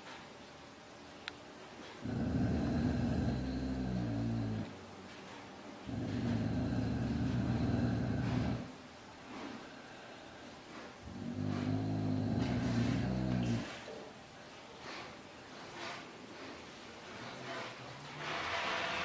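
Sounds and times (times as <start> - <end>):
dog growling: 2.0 - 4.8, 5.8 - 8.8, 11.0 - 13.8.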